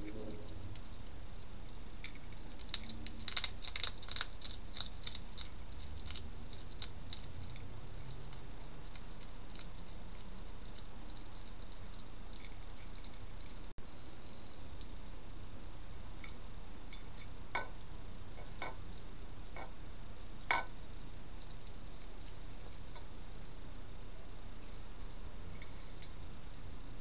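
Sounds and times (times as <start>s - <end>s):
hedgehog crunching food: 0.0s - 13.7s, 14.7s - 23.6s.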